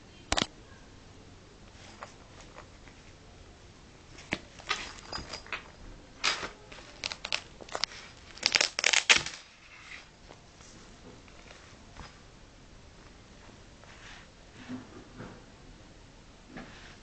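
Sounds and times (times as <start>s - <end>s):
fabric bag rustling: 4.1s - 12.3s.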